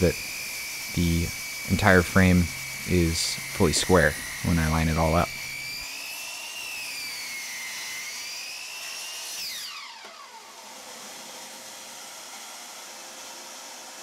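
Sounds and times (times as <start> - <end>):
vacuum hiss: 0.0 - 5.9
miter saw motor whining: 0.0 - 14.0.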